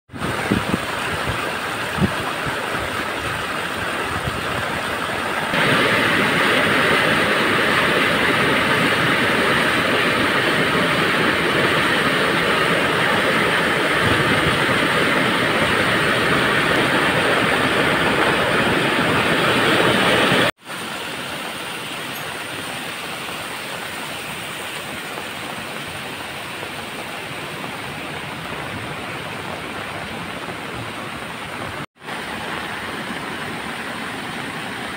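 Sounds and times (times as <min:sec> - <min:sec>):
floodwater rushing: 0:00.1 - 0:34.9
torrential rain: 0:00.1 - 0:34.9
water streaming down stone steps: 0:00.1 - 0:34.9.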